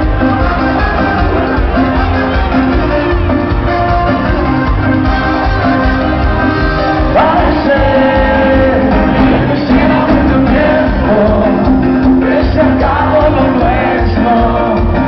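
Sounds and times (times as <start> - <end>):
live band playing dance music: 0.0 - 15.0
man singing: 7.0 - 15.0.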